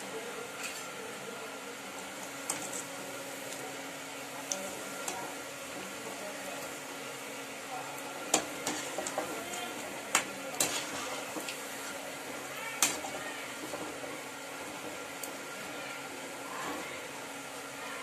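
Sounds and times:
fritters deep-frying in oil: 0.0s - 18.0s
metal spoon scraping pan: 8.4s - 9.3s, 10.1s - 11.6s.

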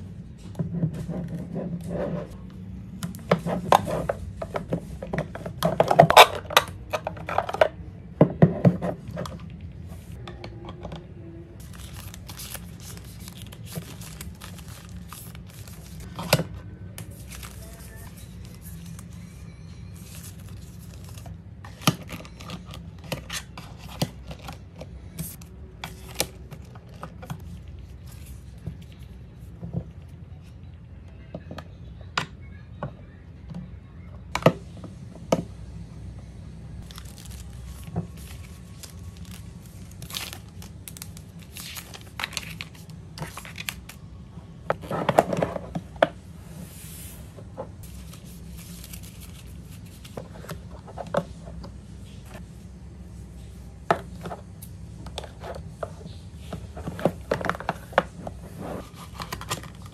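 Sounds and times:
low steady hum: 0.0s - 59.9s
paper cards rustling and crinkling: 11.6s - 19.4s, 20.0s - 30.1s, 36.8s - 44.0s, 44.7s - 52.5s, 53.4s - 59.9s.

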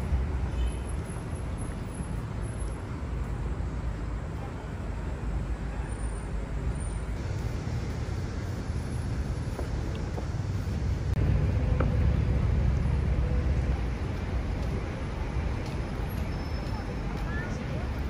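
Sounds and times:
low rumble of traffic: 0.0s - 18.0s.

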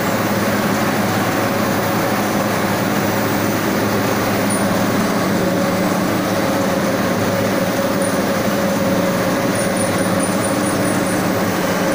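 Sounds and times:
dyeing machine mechanical drone: 0.0s - 11.9s.

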